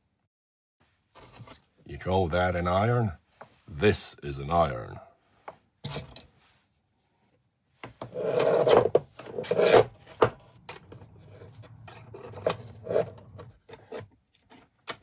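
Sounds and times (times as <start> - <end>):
metal scraping and rubbing: 8.0 - 14.6.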